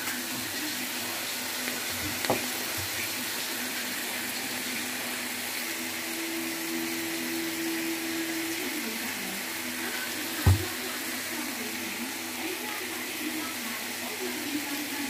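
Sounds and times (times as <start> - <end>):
food sizzling in a frying pan: 0.0 - 15.0
thump: 10.4 - 10.7.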